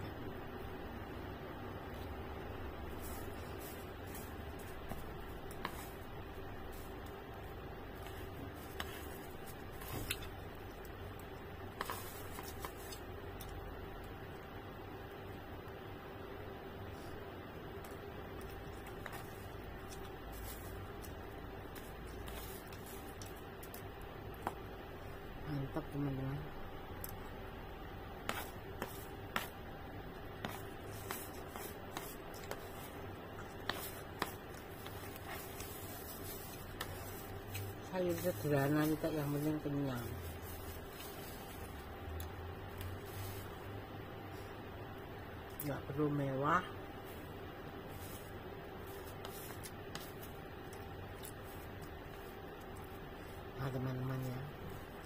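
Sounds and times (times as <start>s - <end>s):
plastic sheet rustling: 33.6s - 41.9s, 42.8s - 43.7s.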